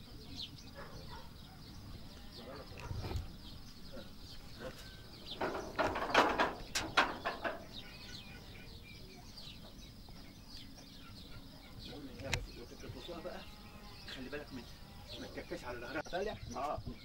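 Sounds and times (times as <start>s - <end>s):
small birds chirping: 0.0s - 17.0s
chickens squawking: 3.9s - 8.8s.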